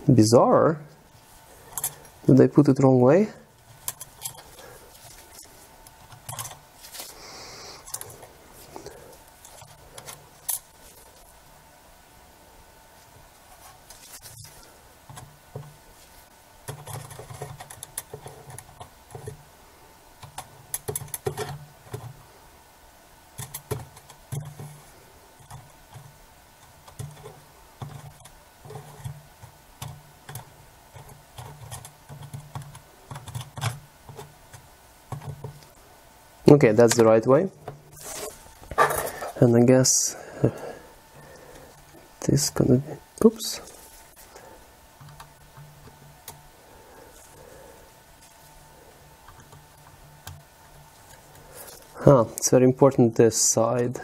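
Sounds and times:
small clicks taps and scrapes: 0:03.6 - 0:07.0, 0:13.5 - 0:15.8, 0:16.6 - 0:19.4, 0:20.2 - 0:22.2, 0:23.4 - 0:24.8, 0:25.4 - 0:35.8, 0:45.0 - 0:46.4, 0:49.2 - 0:50.4.

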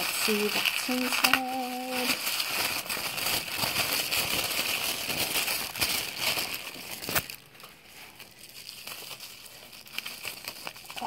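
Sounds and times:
tissue paper crinkling: 0:00.0 - 0:11.0.

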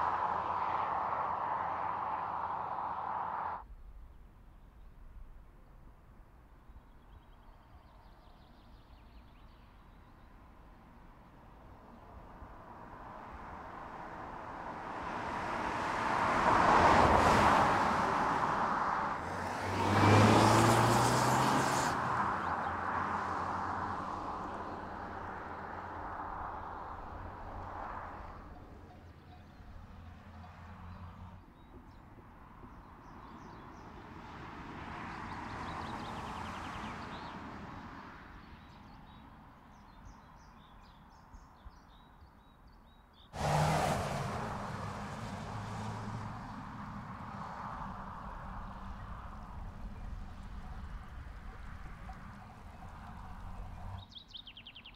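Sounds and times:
car driving past: 0:13.0 - 0:28.6, 0:43.4 - 0:54.0
small birds chirping: 0:48.2 - 0:54.9.

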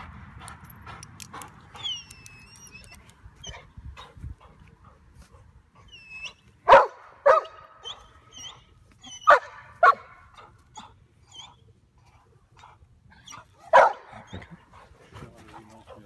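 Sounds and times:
dog barking: 0:06.7 - 0:07.6, 0:09.3 - 0:10.2, 0:13.7 - 0:14.1.

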